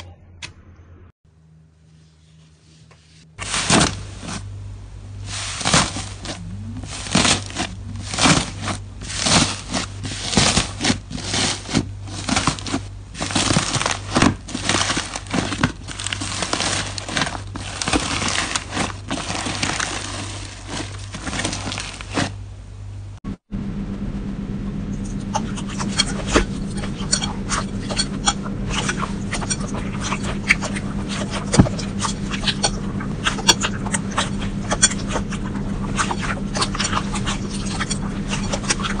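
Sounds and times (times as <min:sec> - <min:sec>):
hands squishing crunchy slime: 0:03.4 - 0:04.5, 0:05.2 - 0:22.4.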